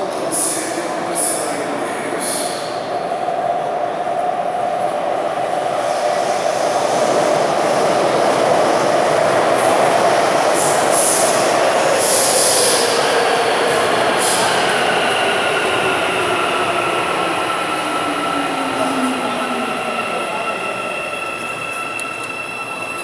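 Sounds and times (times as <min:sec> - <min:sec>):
metro train rumble: 0:00.0 - 0:23.0
train whine sliding lower: 0:04.8 - 0:23.0.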